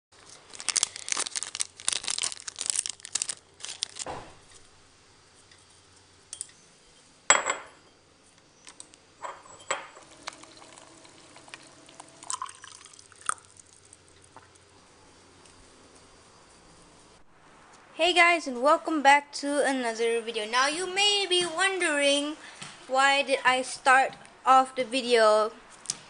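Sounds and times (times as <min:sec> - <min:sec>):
tea bag packet crinkling: 0:00.2 - 0:04.1, 0:10.0 - 0:14.0
crockery clinking: 0:09.2 - 0:11.7
water pouring into a cup: 0:10.0 - 0:14.1.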